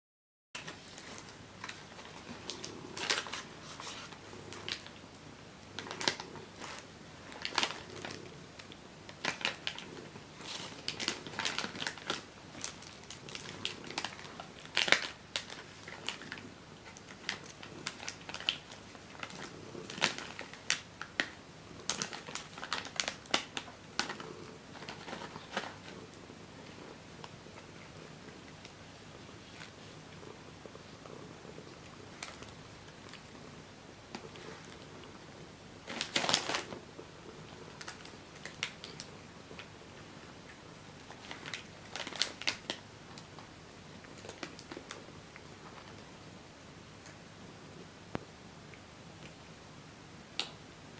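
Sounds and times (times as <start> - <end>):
sweet wrappers crinkling: 0.6 - 5.0, 5.7 - 28.8, 31.0 - 33.3, 35.8 - 39.7, 41.0 - 45.0.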